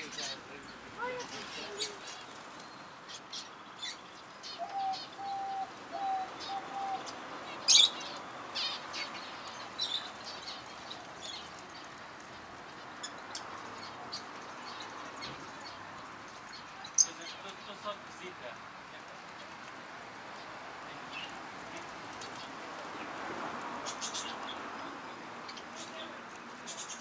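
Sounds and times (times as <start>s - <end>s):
parrots chirping: 0.0s - 11.9s, 23.8s - 26.0s.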